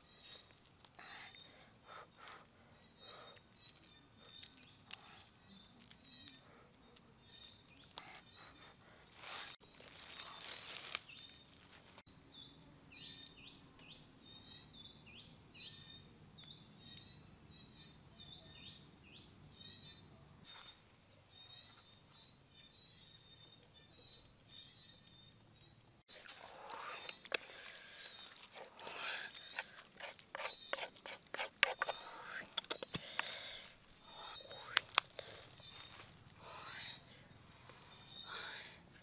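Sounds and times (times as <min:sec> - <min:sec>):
small birds chirping: 0:00.0 - 0:39.0
eggs being shelled by hand: 0:03.3 - 0:06.4, 0:26.1 - 0:36.2.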